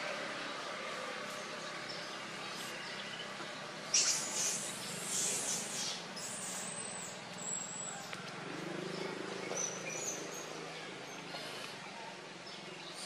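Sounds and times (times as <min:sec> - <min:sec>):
steady background hiss: 0:00.0 - 0:09.4
birds chirping: 0:00.1 - 0:13.0.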